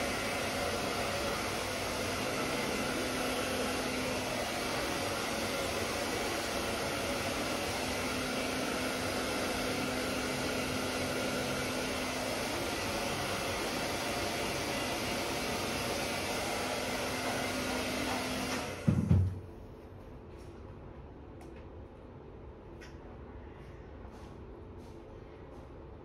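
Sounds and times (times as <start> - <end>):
hair dryer blowing: 0.0 - 19.4.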